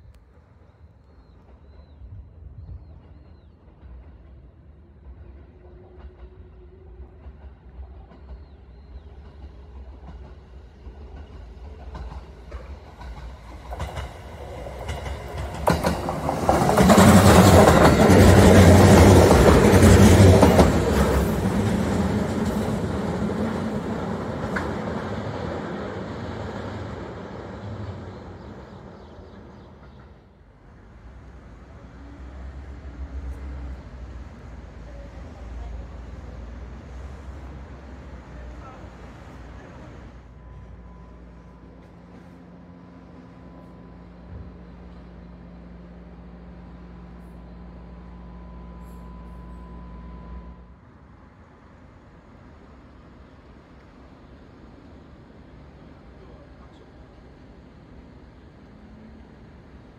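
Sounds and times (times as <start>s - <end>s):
electric train passing: 0.0s - 59.9s
train wheels clacking over rail joints: 9.2s - 25.9s.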